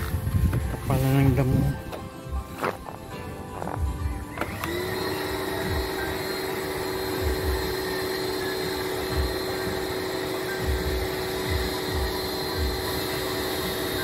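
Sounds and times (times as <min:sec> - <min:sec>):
small electric motor whine: 0:02.9 - 0:14.0.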